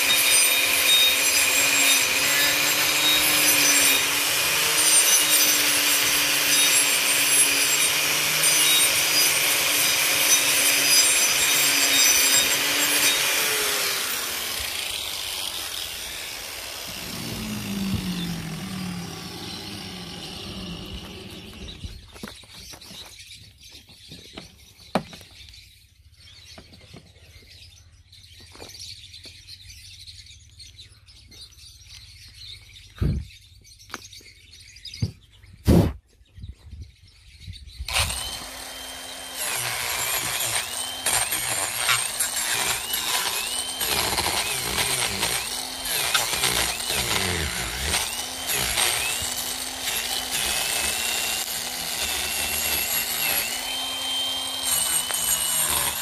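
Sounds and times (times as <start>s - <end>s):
motor winding down: 0.0s - 22.1s, 37.9s - 56.0s
angle grinder grinding wood: 0.0s - 22.8s, 37.9s - 56.0s.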